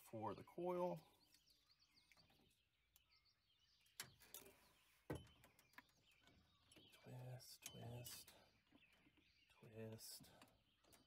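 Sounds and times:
faint birds chirping: 0.0 - 11.0
soft clicks of wires: 10.2 - 11.0.

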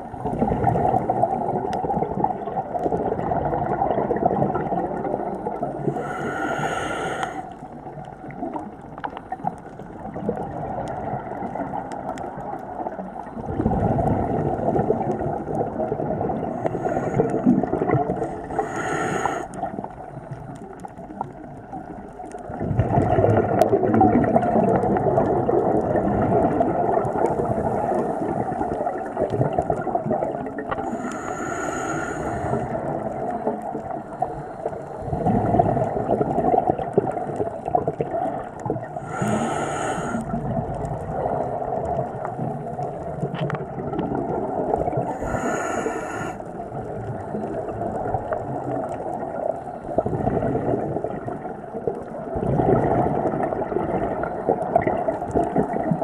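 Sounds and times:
regulator hissing inhalations: 5.9 - 7.5, 16.6 - 17.5, 18.5 - 19.6, 30.8 - 32.8, 39.0 - 40.3, 45.1 - 46.4.

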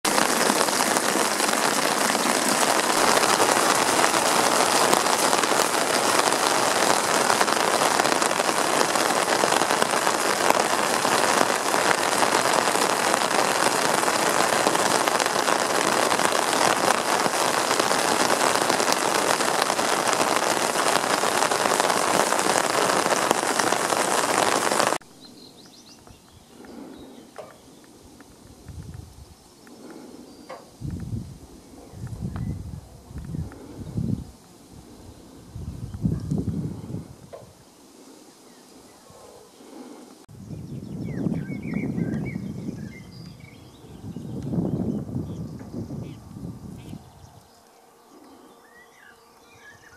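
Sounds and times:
rainwater splashing into a barrel: 0.0 - 25.0
rain: 0.0 - 49.9.

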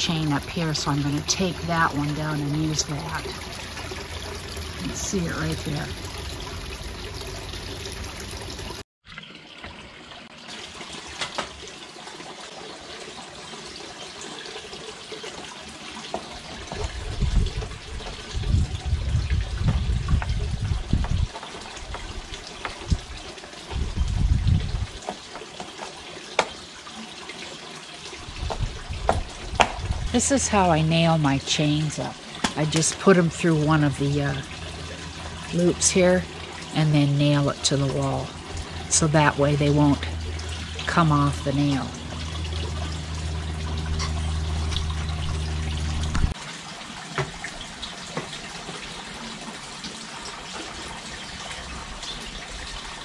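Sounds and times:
wind buffeting microphone: 16.8 - 25.0, 28.2 - 30.3.

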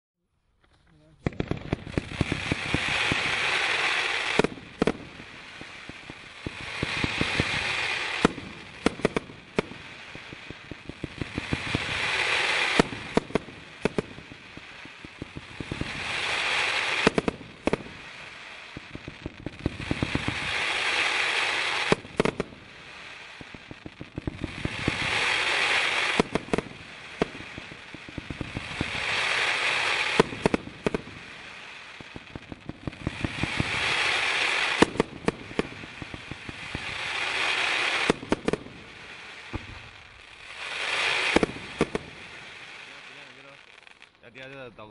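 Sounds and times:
firework pops and bangs: 0.5 - 44.9.

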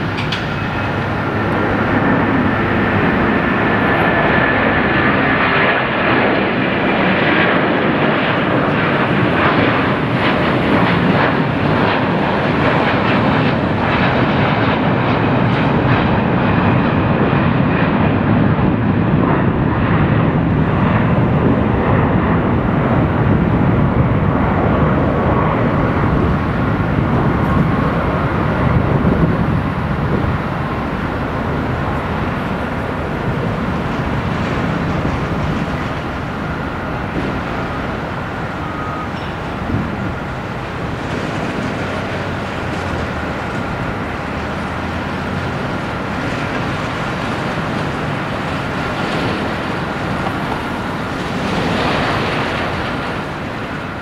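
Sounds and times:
loud jet roar: 0.0 - 54.0
faint high whine: 35.6 - 42.8.

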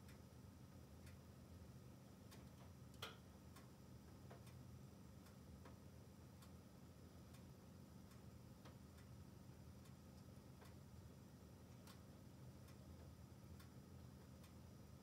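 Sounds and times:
logs crackling in a stove: 0.0 - 15.0
low steady hum: 0.0 - 15.0.

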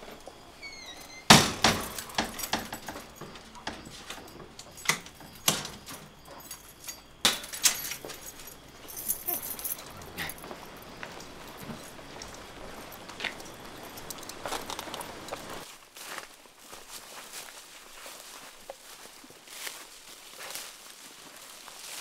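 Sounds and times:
knocks and rattles of handling gear: 1.3 - 15.7.

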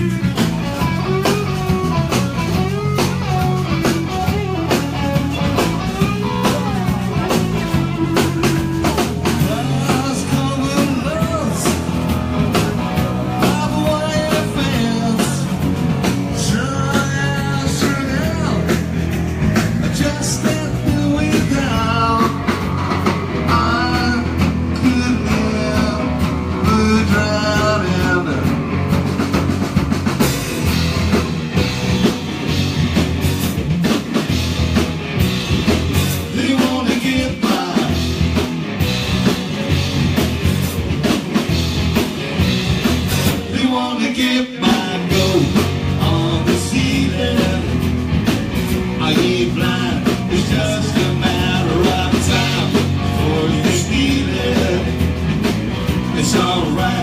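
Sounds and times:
live rock band playing: 0.0 - 57.0
man singing: 9.2 - 11.9, 13.2 - 15.6, 16.3 - 18.9, 19.7 - 22.6, 23.4 - 28.7, 36.2 - 38.1, 43.4 - 48.0, 48.9 - 55.2, 55.9 - 57.0.

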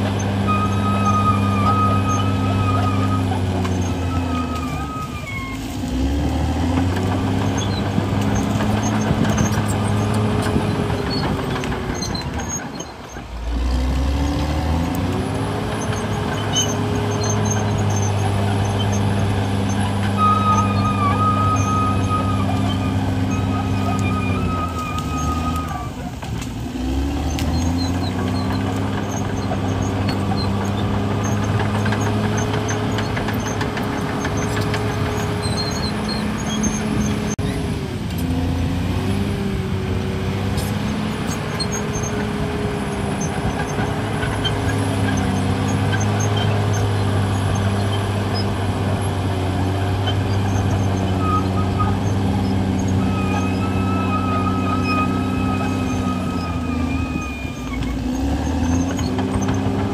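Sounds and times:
bulldozer diesel engine under load: 0.0 - 59.9
thin high squeal: 0.2 - 5.7, 15.7 - 26.1, 50.0 - 59.5.

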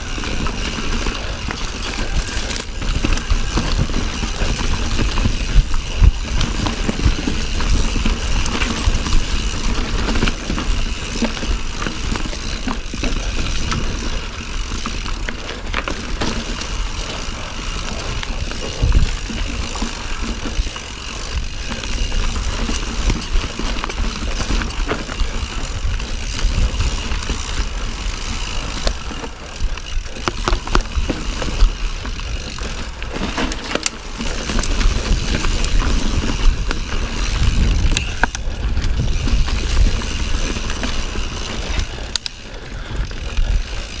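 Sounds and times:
bike rattling and knocking: 0.0 - 44.0
bike tyre noise on trail: 0.0 - 44.0
wind rumble on microphone: 16.8 - 33.2, 34.0 - 42.1.

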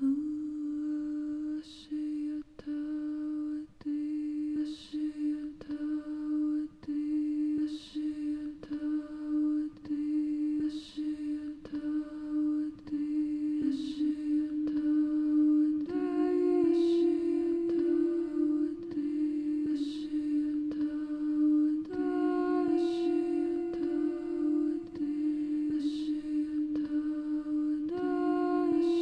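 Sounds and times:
woman humming into microphone: 11.3 - 29.0.

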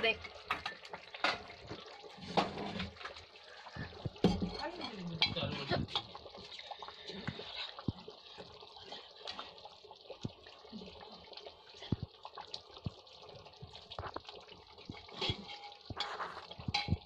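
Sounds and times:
gravy bubbling and popping: 0.0 - 17.0
ladle knocking against pan: 4.1 - 4.6, 15.1 - 17.0.

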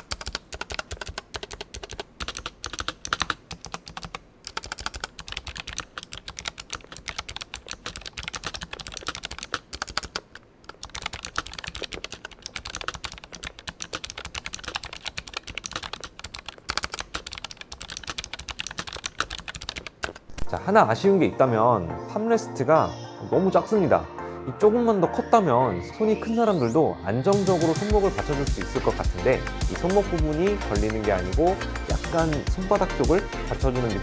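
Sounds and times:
mechanical keyboard clicks: 0.0 - 20.3.

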